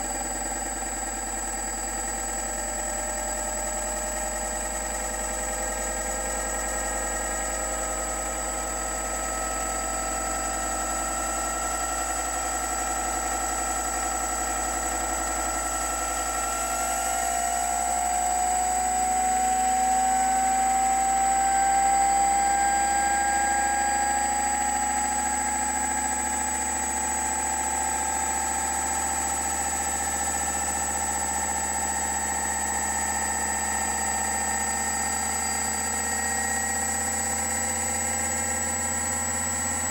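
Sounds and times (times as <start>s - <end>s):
electric motor whine rising in pitch: 14.6s - 39.9s.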